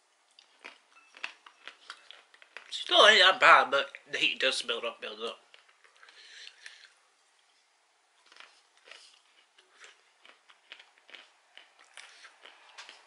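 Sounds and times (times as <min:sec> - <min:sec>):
peanuts being chewed: 0:00.2 - 0:02.9, 0:05.2 - 0:07.5, 0:08.2 - 0:13.0.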